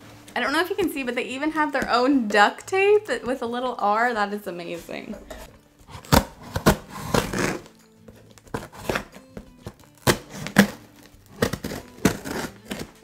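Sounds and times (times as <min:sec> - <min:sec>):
quiet background music: 0:00.0 - 0:13.0
scissors cutting packing tape: 0:05.9 - 0:13.0.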